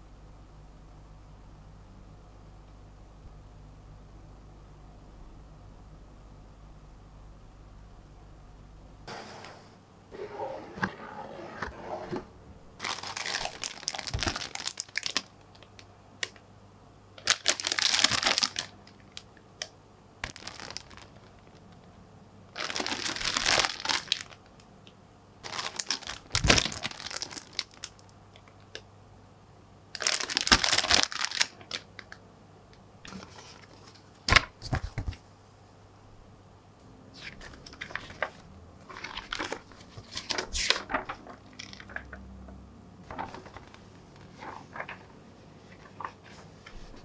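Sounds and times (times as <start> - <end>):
plastic bags crinkling: 12.8 - 15.8, 17.2 - 19.2, 20.2 - 21.6, 22.5 - 24.6, 25.4 - 28.6, 30.0 - 32.2, 37.4 - 42.2, 43.0 - 47.0.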